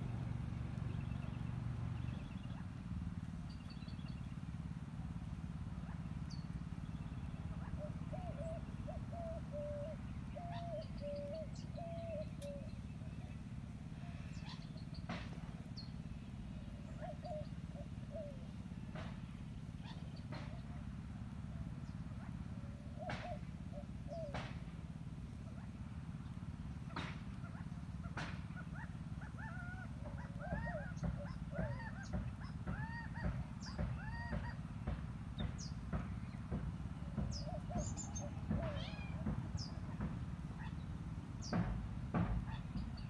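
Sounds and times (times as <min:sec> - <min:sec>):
animal calls: 0:07.3 - 0:14.9, 0:19.8 - 0:20.9, 0:26.8 - 0:34.7, 0:37.2 - 0:41.6.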